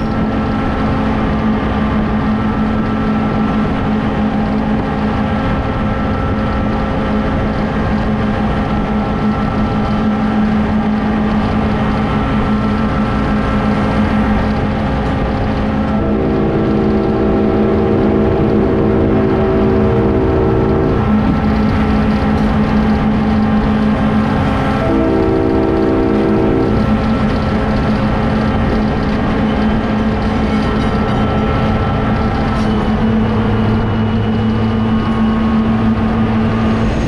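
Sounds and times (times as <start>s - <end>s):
locomotive engine running: 0.0s - 37.0s
train rumble: 0.0s - 37.0s
multi-note locomotive horn: 15.7s - 27.3s.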